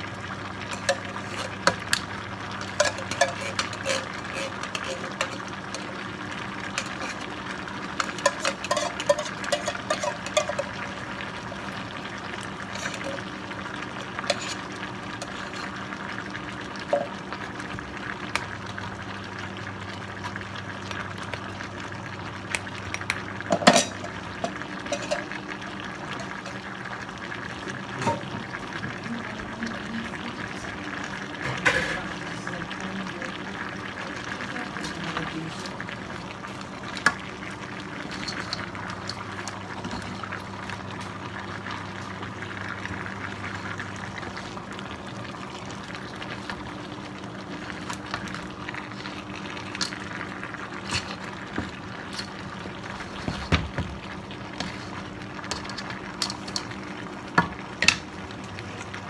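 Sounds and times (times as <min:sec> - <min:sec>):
cooking hiss: 0:00.0 - 0:59.0
spoon clinking and scraping pan: 0:00.7 - 0:02.0, 0:02.6 - 0:05.9, 0:06.7 - 0:07.3, 0:08.0 - 0:10.8, 0:12.7 - 0:13.2, 0:14.1 - 0:15.8, 0:23.5 - 0:25.4, 0:38.0 - 0:40.0.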